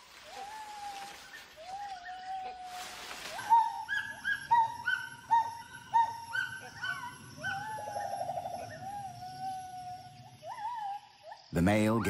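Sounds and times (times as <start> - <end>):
gibbon hooting calls: 3.4 - 11.0.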